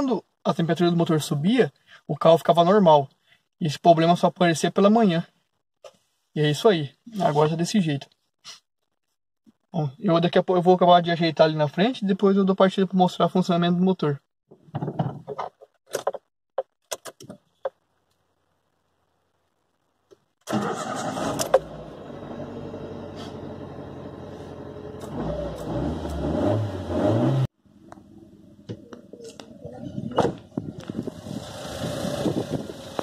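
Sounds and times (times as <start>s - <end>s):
car engine starting and revving: 20.4s - 28.7s, 30.4s - 33.0s
car engine idling: 30.8s - 33.0s.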